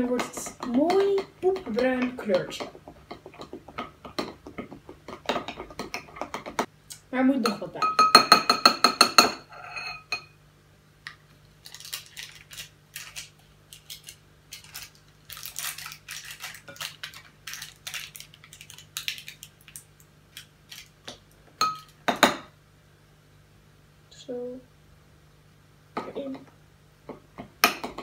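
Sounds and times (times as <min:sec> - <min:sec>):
metal spoon scraping glass bowl: 0:09.5 - 0:10.2.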